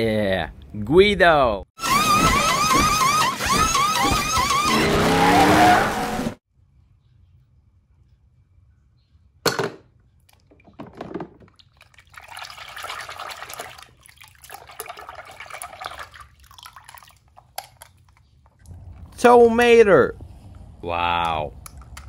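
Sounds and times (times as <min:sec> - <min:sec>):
water splashing in plastic tub: 0:10.3 - 0:17.9.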